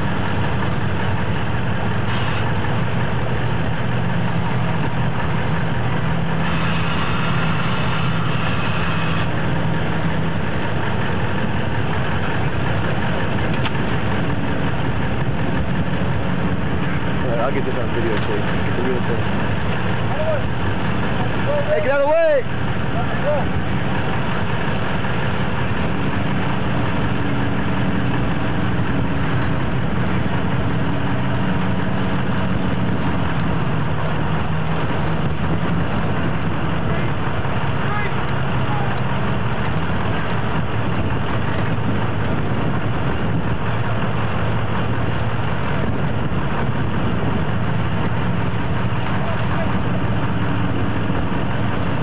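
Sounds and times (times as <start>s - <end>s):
vehicle engine running: 0.0s - 52.0s
wind buffeting microphone: 22.5s - 37.8s, 38.4s - 52.0s.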